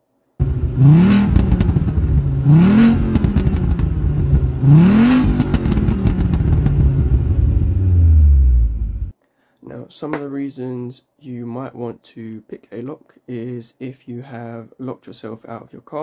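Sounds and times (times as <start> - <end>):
engine revving roughly: 0.4 - 9.1.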